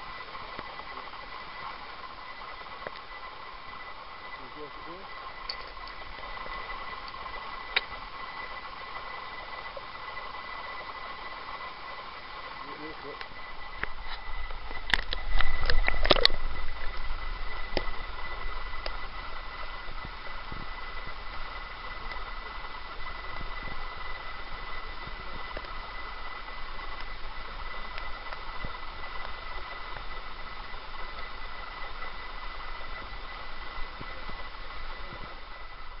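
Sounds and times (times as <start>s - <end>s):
thin steady whine: 0.0s - 36.0s.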